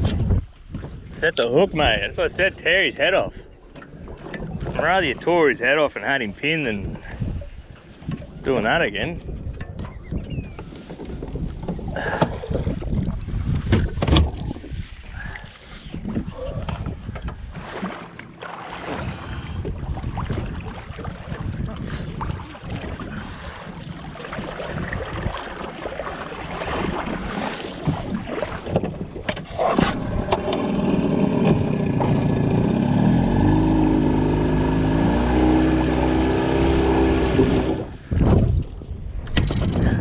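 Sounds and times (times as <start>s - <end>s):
wind on microphone: 0.0s - 2.7s, 3.3s - 5.3s, 6.7s - 40.0s
water around a boat: 0.0s - 40.0s
motorboat engine: 17.5s - 21.9s, 29.4s - 38.1s.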